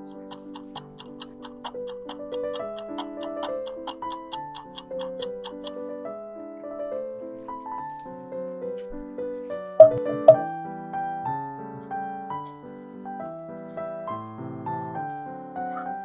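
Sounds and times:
background piano music: 0.0 - 16.0
sharp knocks: 0.1 - 5.8, 9.8 - 10.5.

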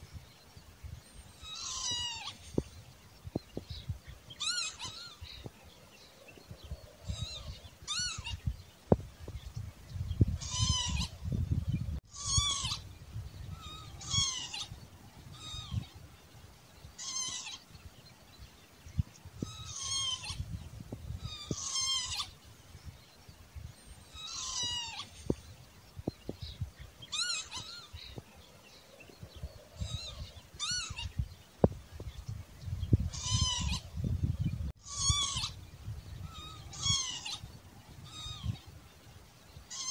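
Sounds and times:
bird calling: 1.1 - 2.7, 3.7 - 8.6, 10.2 - 11.3, 12.0 - 16.0, 16.9 - 17.8, 19.4 - 22.5, 23.8 - 31.3, 32.2 - 35.6, 36.2 - 38.7, 39.6 - 39.9.

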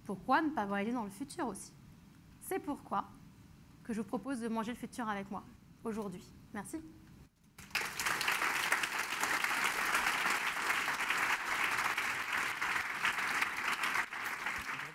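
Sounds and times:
audience applauding: 7.6 - 14.9.

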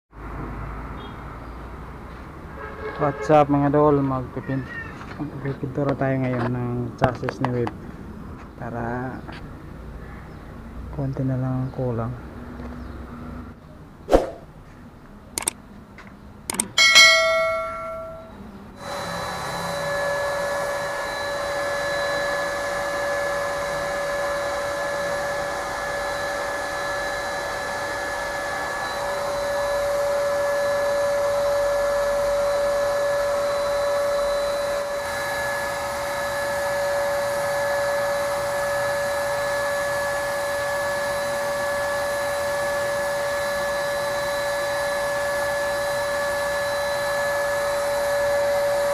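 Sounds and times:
clicks: 15.4 - 15.6, 16.5 - 16.8
short metallic ring: 16.8 - 18.4
paint sprayer motor humming: 18.8 - 48.9.

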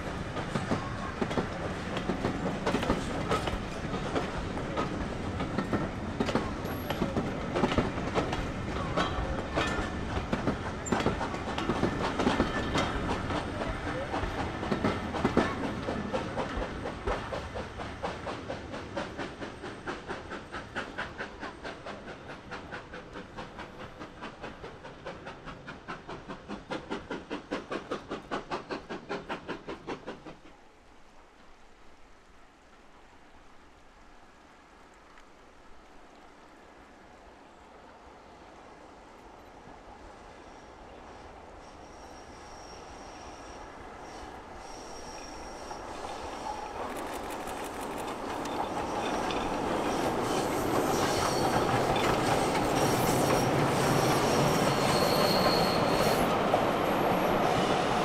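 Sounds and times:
steam locomotive beat: 0.0 - 30.6, 44.0 - 58.0
train wheels clattering over rail joints: 0.0 - 30.6, 45.0 - 57.2.

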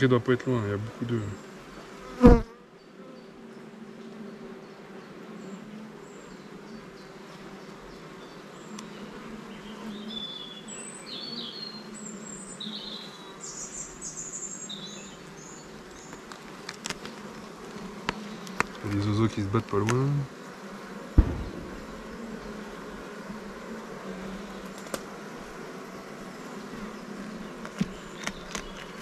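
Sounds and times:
bees buzzing: 0.0 - 29.0
sharp knock: 21.2 - 22.2.

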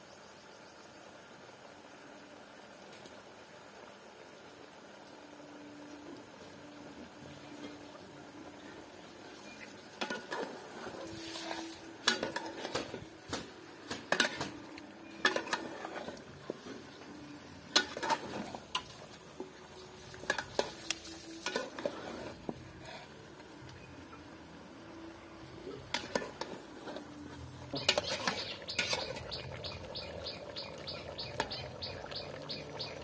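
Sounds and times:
metal spoon scraping pot: 27.7 - 29.4.

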